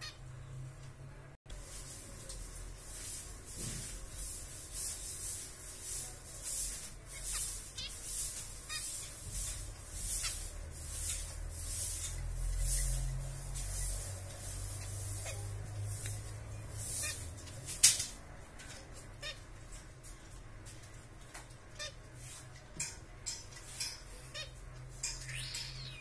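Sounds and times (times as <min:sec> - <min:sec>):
finches chirping: 0:06.4 - 0:11.3, 0:24.0 - 0:26.0.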